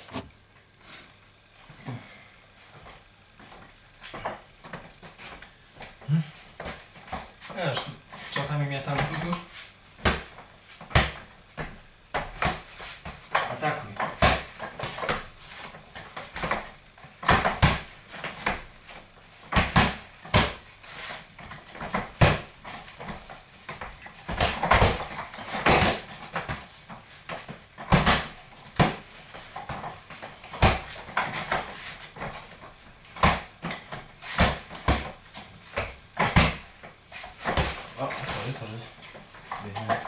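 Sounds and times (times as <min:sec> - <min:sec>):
boxing gloves slapping mitts: 0:08.4 - 0:40.0.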